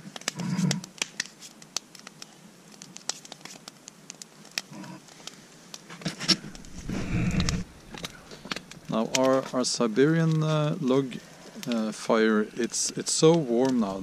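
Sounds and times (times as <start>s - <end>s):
wood fire crackling and popping: 0.0s - 14.0s
low handling rustle: 5.0s - 14.0s.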